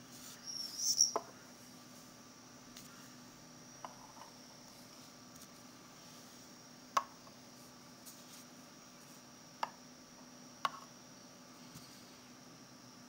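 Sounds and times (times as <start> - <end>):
faint high whine: 0.0 - 13.0.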